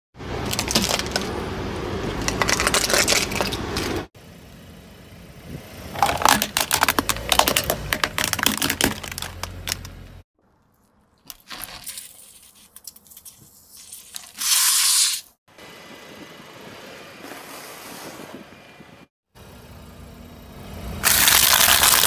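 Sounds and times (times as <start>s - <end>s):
plastic toy cracking under tyre: 0.4s - 1.3s, 2.2s - 3.7s, 6.0s - 9.9s, 21.0s - 22.0s
tyre crunching objects: 5.9s - 10.2s.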